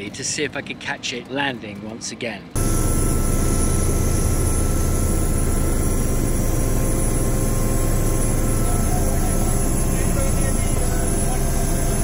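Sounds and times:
helicopter turbine and rotors drone: 0.0s - 12.0s
high-pitched whine: 2.6s - 12.0s.

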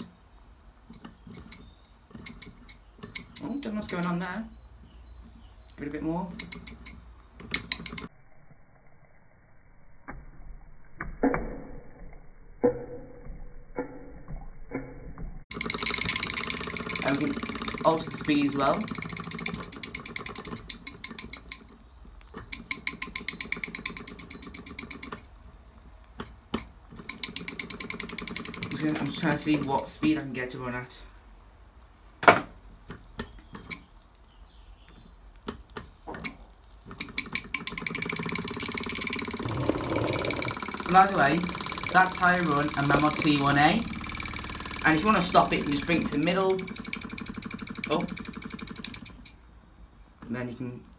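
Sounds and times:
toy steam engine knocks and puffs: 15.5s - 25.4s, 26.2s - 29.7s, 36.1s - 49.4s
steam engine steady hum: 38.1s - 49.2s.

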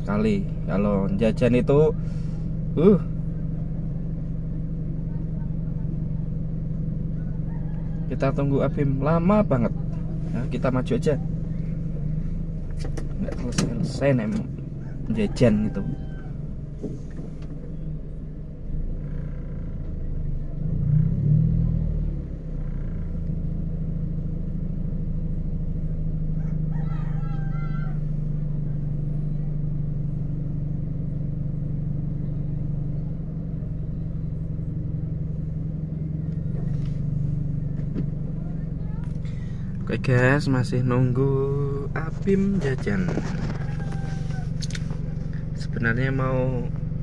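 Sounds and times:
car engine idling: 0.0s - 47.0s
loud rumble: 31.0s - 47.0s.

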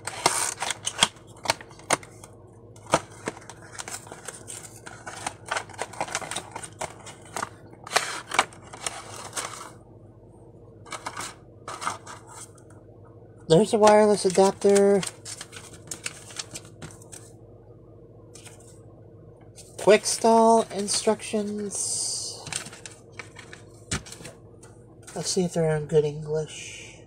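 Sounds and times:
packaging rustling and clicking: 0.0s - 9.7s, 13.8s - 17.3s, 22.4s - 24.4s.

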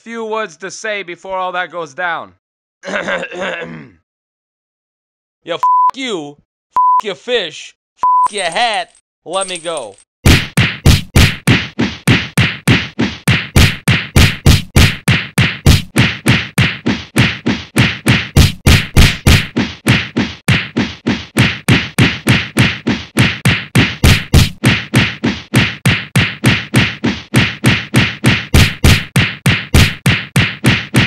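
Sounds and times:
rapid whacking blows: 10.3s - 31.0s.

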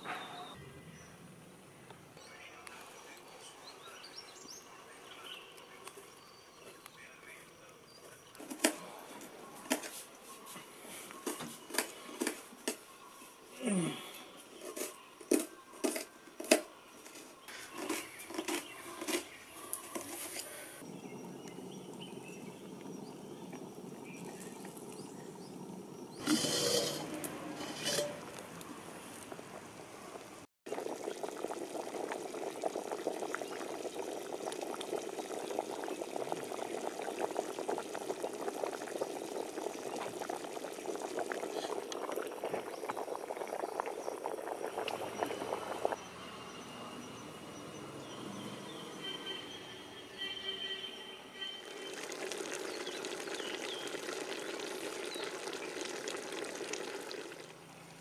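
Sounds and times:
pot boiling hard: 19.9s - 47.2s, 51.6s - 58.0s.

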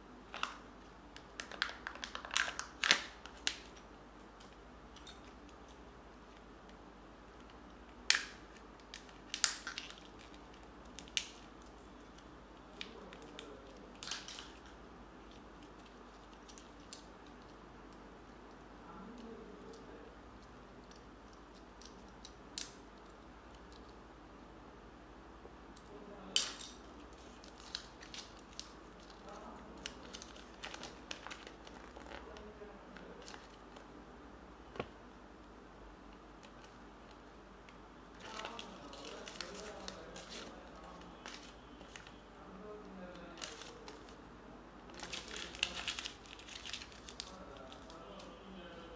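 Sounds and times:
paper crinkling: 1.2s - 6.4s, 26.9s - 33.9s, 38.2s - 42.2s, 43.0s - 44.2s, 44.9s - 48.8s.

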